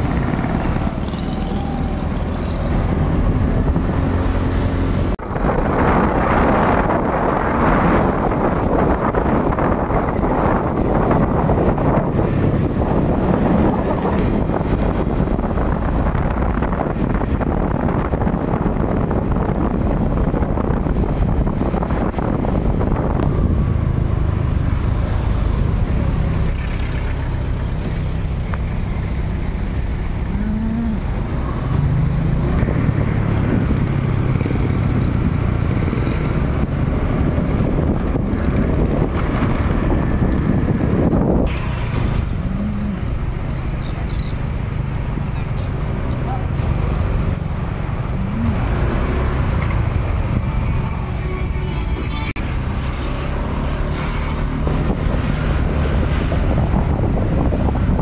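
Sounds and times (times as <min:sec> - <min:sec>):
motorcycle engine revving: 0:00.0 - 0:05.2, 0:38.0 - 0:44.7
motorcycle riding noise: 0:00.0 - 0:58.0.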